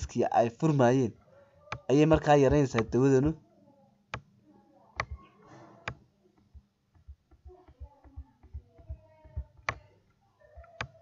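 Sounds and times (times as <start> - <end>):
computer mouse clicking: 2.5 - 3.0, 5.0 - 5.2, 5.8 - 9.9, 10.6 - 11.0
faint low taps and handling: 5.8 - 11.0.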